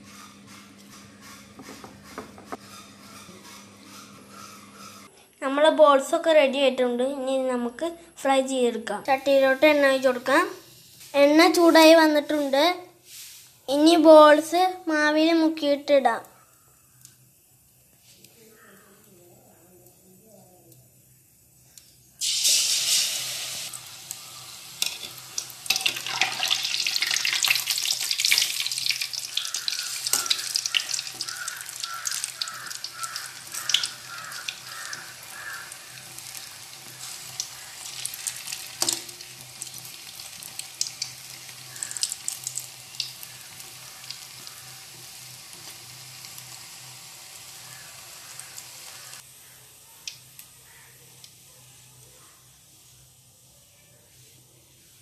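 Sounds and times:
food deep-frying in hot oil: 0:19.8 - 0:53.5.

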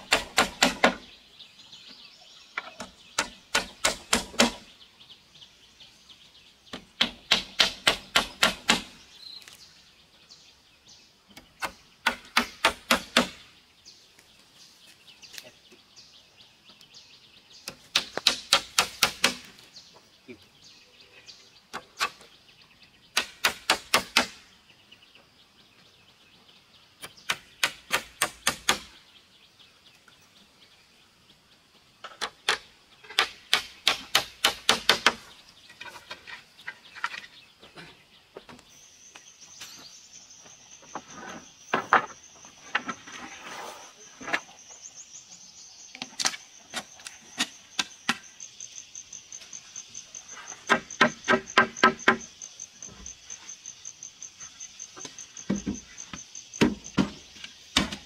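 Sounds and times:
hammer driving nails into wood: 0:00.0 - 0:01.0, 0:02.8 - 0:04.6, 0:06.8 - 0:09.0, 0:11.6 - 0:13.4, 0:17.7 - 0:19.5, 0:23.2 - 0:24.4, 0:27.2 - 0:28.9, 0:33.2 - 0:35.2
machete knocking on wooden board: 0:56.6 - 0:57.2.

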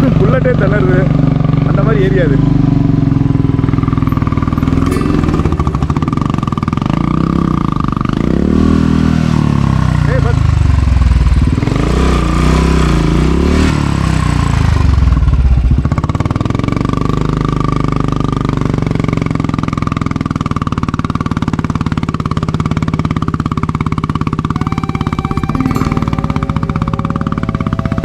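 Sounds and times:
motorcycle engine revving unevenly: 0:00.0 - 0:19.7
music: 0:04.6 - 0:06.1, 0:24.6 - 0:28.0.

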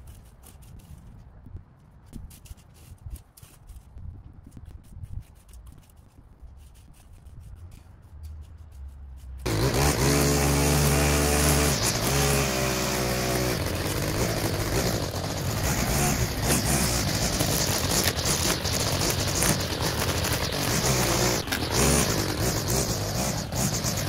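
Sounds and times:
loud engine running: 0:09.4 - 0:24.0.

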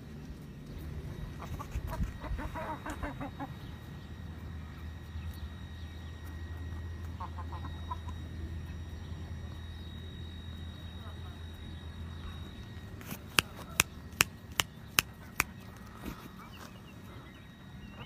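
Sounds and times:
steady low hum: 0:00.0 - 0:18.0
young chickens calling: 0:00.6 - 0:08.3.

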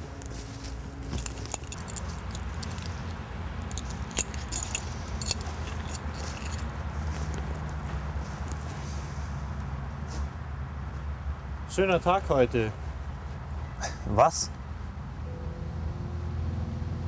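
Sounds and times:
low steady rumble: 0:00.0 - 0:07.8
footsteps brushing through undergrowth: 0:00.0 - 0:09.1
twigs and dry leaves crackling: 0:00.1 - 0:08.7.

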